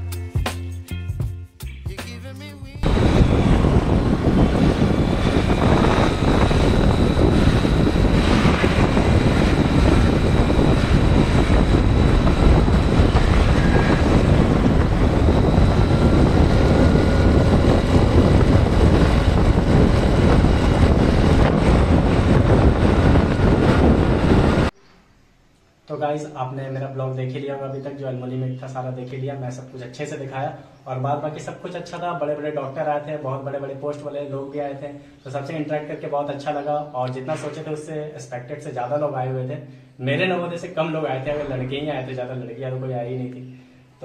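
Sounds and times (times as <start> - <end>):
wind buffeting microphone: 2.8 - 24.8.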